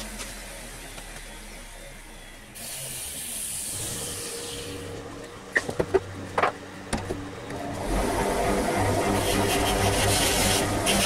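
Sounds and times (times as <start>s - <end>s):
hiss: 2.6s - 4.9s.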